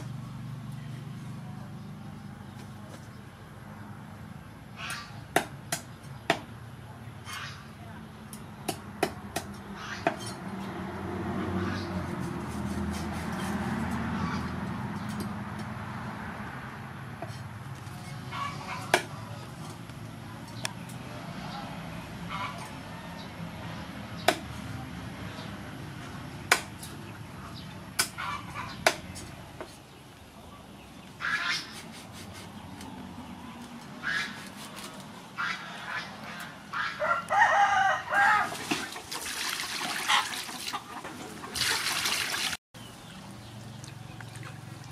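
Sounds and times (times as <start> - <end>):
cleaver chopping on wooden board: 5.3 - 6.5, 18.8 - 19.1, 24.2 - 24.5, 26.5 - 26.8, 28.8 - 29.8.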